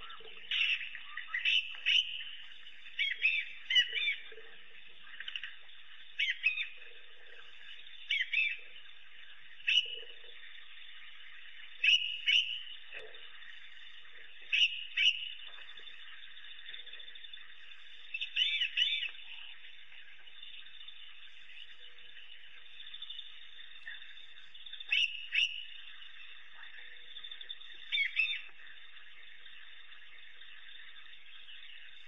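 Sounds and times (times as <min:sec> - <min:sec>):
wild dogs twittering calls: 0:00.0 - 0:08.8, 0:09.5 - 0:10.8, 0:11.8 - 0:19.8, 0:23.6 - 0:27.0, 0:27.6 - 0:28.6.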